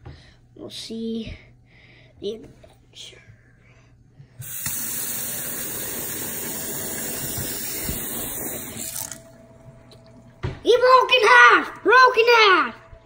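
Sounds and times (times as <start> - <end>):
faucet running into metal sink: 4.4 - 9.4.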